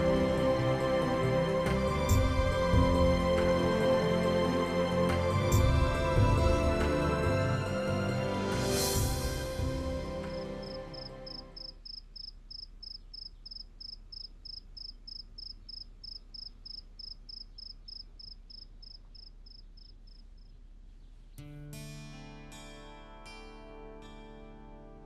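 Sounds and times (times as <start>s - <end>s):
music: 0.0s - 11.7s, 21.4s - 25.0s
cricket chirping: 10.6s - 20.5s
plucked-string music: 21.4s - 25.0s.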